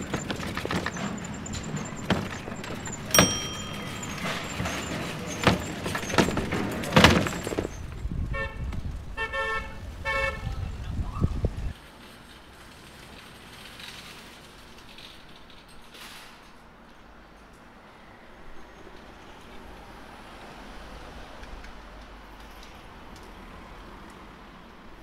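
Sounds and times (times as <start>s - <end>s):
bike box rattling and knocking: 0.0s - 7.8s
bell ring: 3.0s - 6.4s.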